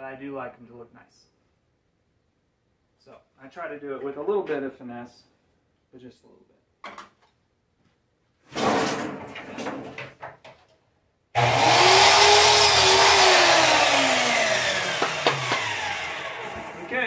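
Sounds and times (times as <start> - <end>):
wood pieces clattering: 8.5 - 10.7
power saw whining: 11.4 - 17.0.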